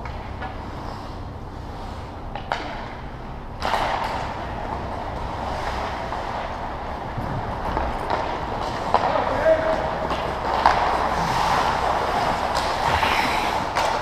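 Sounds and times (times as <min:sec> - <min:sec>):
steady rushing noise: 0:10.3 - 0:14.0.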